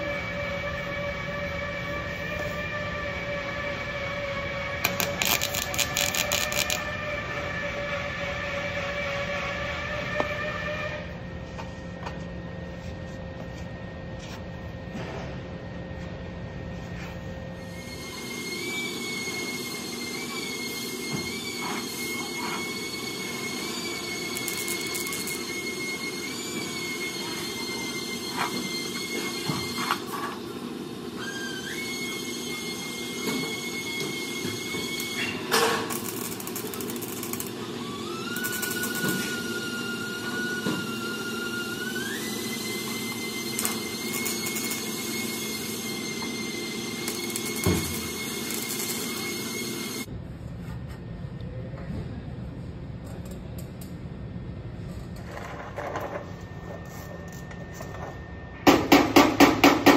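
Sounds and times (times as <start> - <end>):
high-pitched whine: 0.0 - 12.5, 17.4 - 30.4, 31.7 - 50.1
low shop hum: 0.0 - 59.9
welder arc crackle: 4.8 - 6.9, 22.7 - 27.0, 33.8 - 40.5, 41.7 - 50.1.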